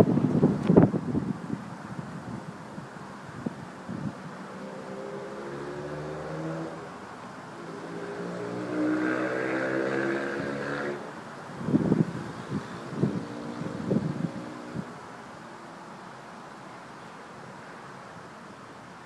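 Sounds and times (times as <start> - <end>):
wind buffeting microphone: 0.0 - 5.3, 8.1 - 15.0.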